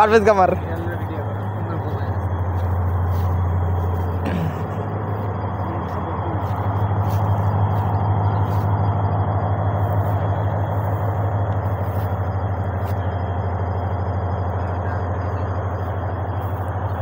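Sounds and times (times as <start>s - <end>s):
engine drone with fast pulse: 0.0s - 17.0s.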